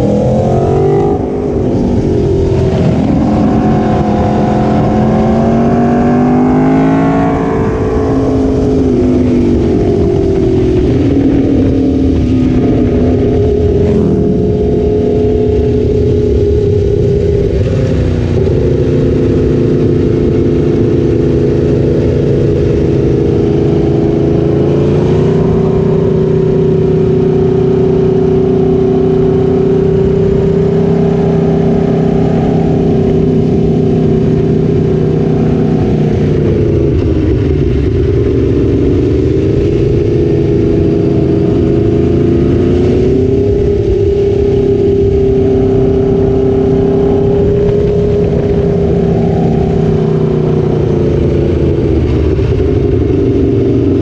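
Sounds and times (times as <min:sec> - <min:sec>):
motorcycle engine under load: 0:00.0 - 0:54.0.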